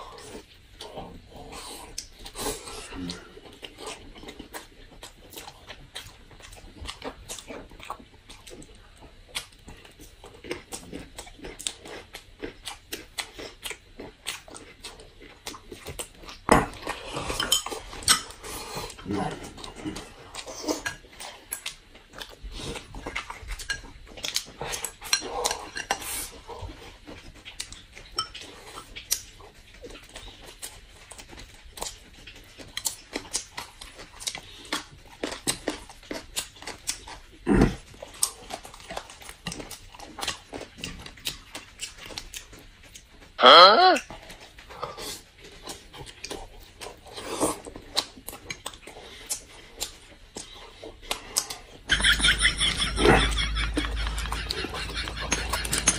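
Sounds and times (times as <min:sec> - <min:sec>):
chewing and slurping: 0:00.0 - 0:43.4, 0:44.0 - 0:55.9
chopsticks clicking against bowls: 0:54.0 - 0:55.9.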